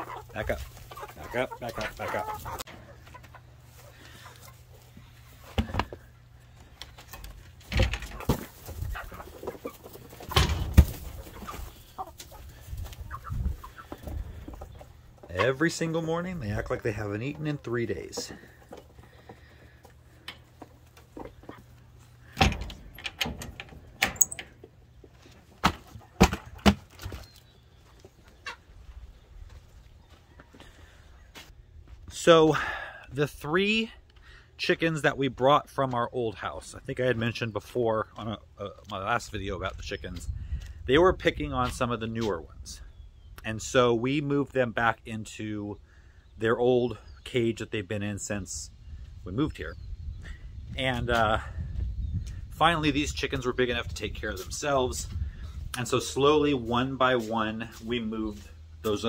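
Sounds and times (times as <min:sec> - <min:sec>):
hens clucking: 0:00.0 - 0:31.5
chickens: 0:00.0 - 0:59.0.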